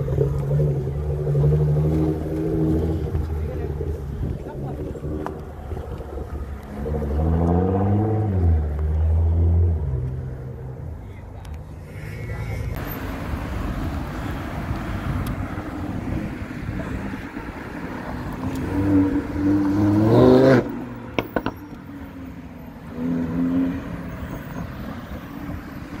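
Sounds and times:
sports car engine revving: 0:00.0 - 0:10.6, 0:13.8 - 0:21.6
street traffic noise: 0:00.0 - 0:26.0.

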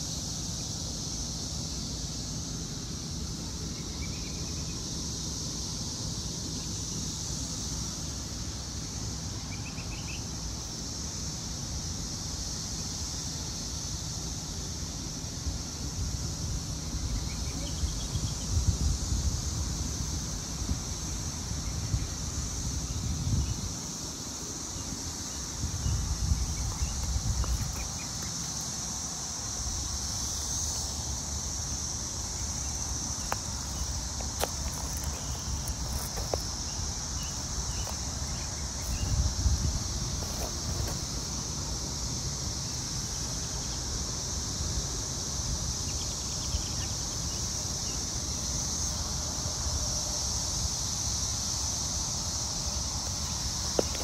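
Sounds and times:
distant cicadas droning: 0:00.0 - 0:54.0
wind rumble on microphone: 0:15.9 - 0:24.0, 0:25.4 - 0:28.2, 0:34.4 - 0:41.2.

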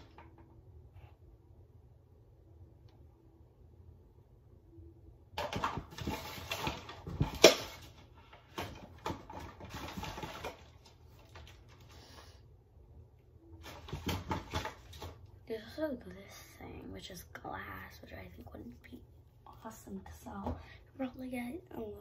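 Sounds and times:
rustling belongings: 0:05.4 - 0:12.2.

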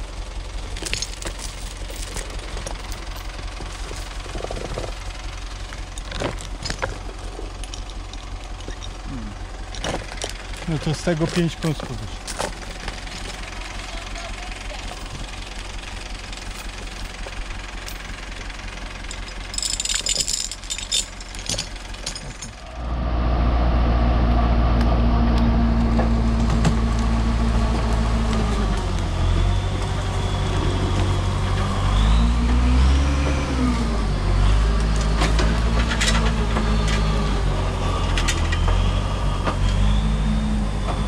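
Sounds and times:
diesel engine running: 0:00.0 - 0:41.0
metallic chain clinks and rattles: 0:00.7 - 0:13.6, 0:14.7 - 0:22.7.

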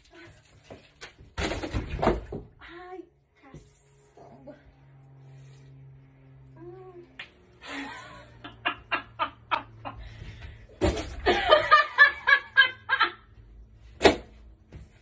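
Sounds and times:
woman laughing: 0:11.2 - 0:13.3.

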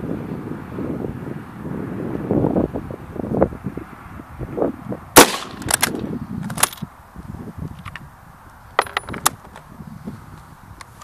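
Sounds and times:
rifle shot: 0:05.2 - 0:06.0
rifle bolt metallic clicks: 0:05.2 - 0:06.8.

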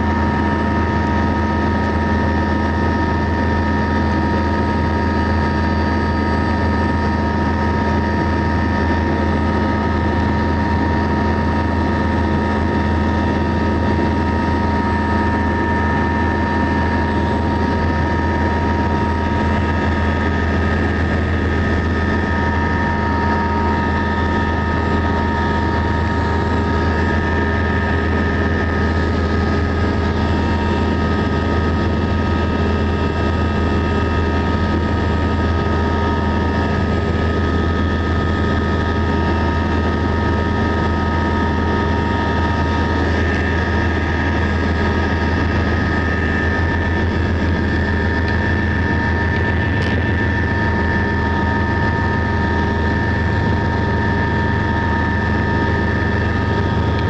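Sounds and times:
helicopter cabin drone: 0:00.0 - 0:57.0
high turbine whine: 0:00.0 - 0:57.0.

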